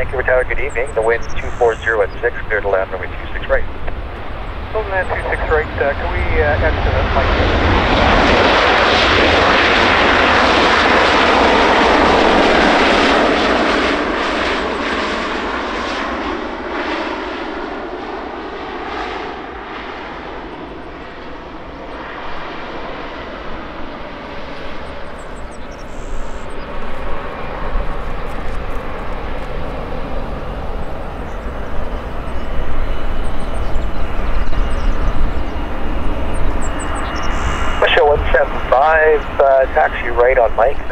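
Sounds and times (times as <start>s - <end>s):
faint whine: 0.0s - 9.0s, 19.6s - 40.9s
airliner engines: 0.0s - 40.9s.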